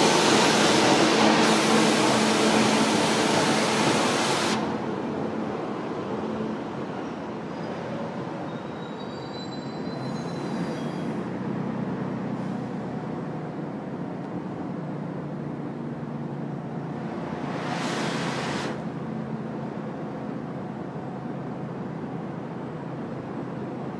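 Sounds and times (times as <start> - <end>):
train wheels rumbling on rail: 0.0 - 15.0
wheels squealing: 7.0 - 11.2.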